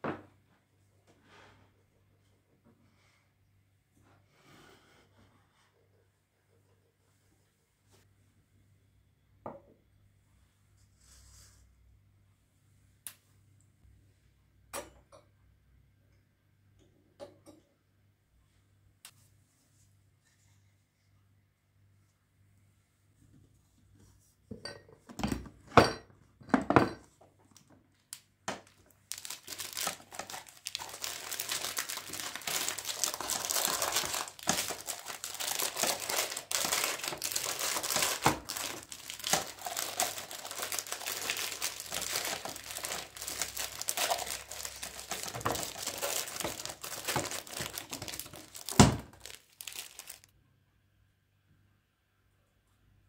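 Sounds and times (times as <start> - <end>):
foil packet crinkling: 28.6 - 50.3.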